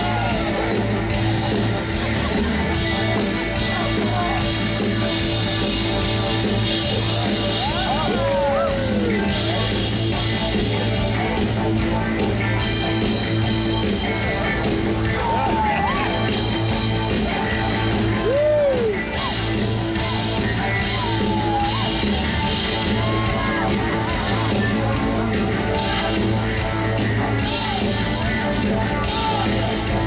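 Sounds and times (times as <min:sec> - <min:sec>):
rock band bass and drums: 0:00.0 - 0:30.0.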